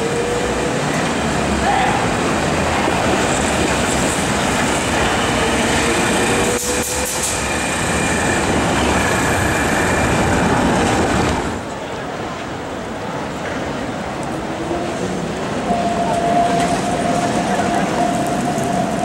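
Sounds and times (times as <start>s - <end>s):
tram wheels rumbling on rails: 0.0s - 19.0s
rail clacks: 0.5s - 11.8s, 13.1s - 19.0s.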